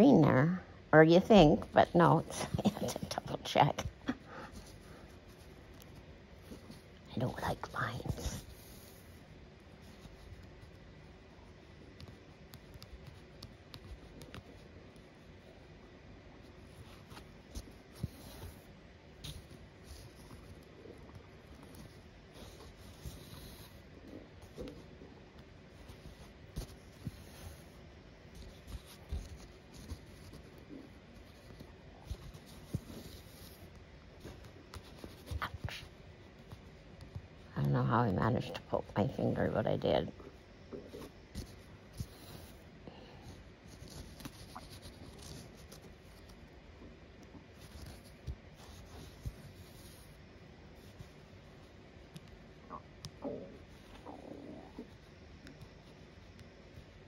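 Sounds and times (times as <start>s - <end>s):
needle and thread through fabric: 1.3s - 15.8s, 16.4s - 40.0s, 43.3s - 46.6s, 47.3s - 52.4s
fingers rubbing fabric: 4.6s - 15.5s.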